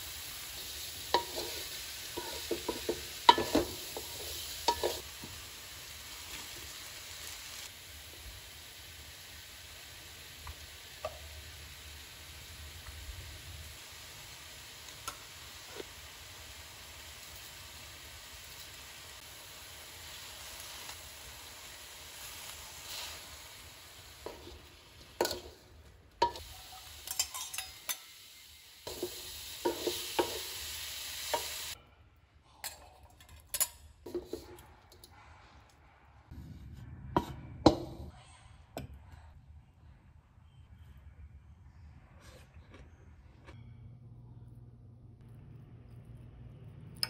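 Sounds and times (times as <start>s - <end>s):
food sizzling in wok: 0.0s - 31.8s
wooden spatula knocking wok: 2.2s - 5.3s, 28.9s - 30.5s.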